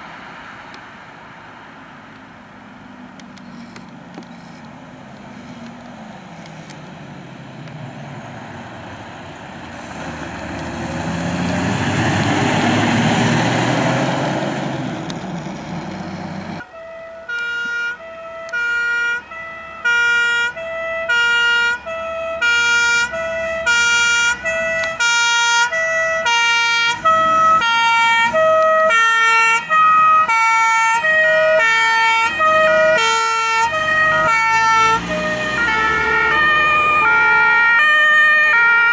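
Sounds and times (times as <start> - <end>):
vehicle engine and tyres passing: 0.0 - 17.2, 18.0 - 38.9
two-tone emergency siren: 16.6 - 38.9.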